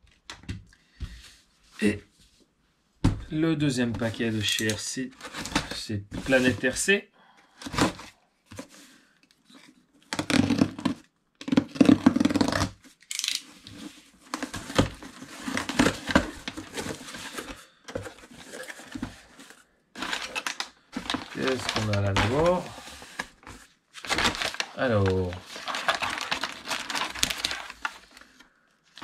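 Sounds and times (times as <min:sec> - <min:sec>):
wrapping rustling and crinkling: 0:05.2 - 0:06.8, 0:09.4 - 0:29.0
packaging ripping: 0:10.2 - 0:13.5, 0:20.0 - 0:22.7, 0:24.0 - 0:28.2.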